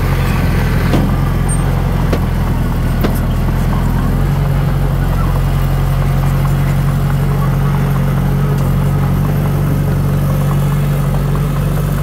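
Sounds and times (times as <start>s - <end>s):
heavy diesel engine running: 0.0s - 12.0s
sharp knocks: 0.8s - 3.5s.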